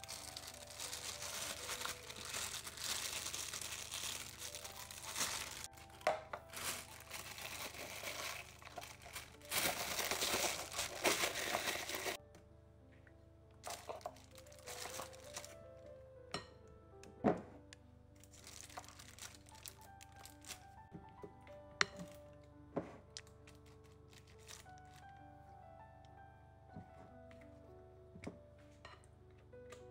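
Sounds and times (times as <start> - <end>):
plastic piping bag crinkling: 0.0 - 12.2, 13.6 - 15.9, 18.1 - 21.2, 23.1 - 25.3
soft background music: 0.0 - 29.9.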